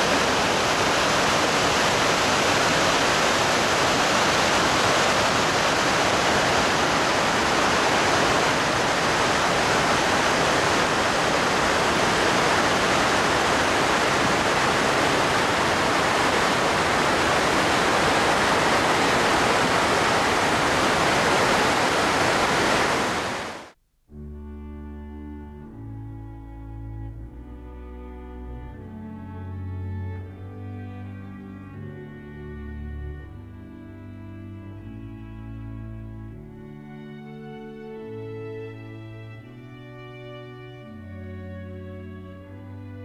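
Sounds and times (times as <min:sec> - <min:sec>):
water rushing over waterfall: 0:00.0 - 0:23.8.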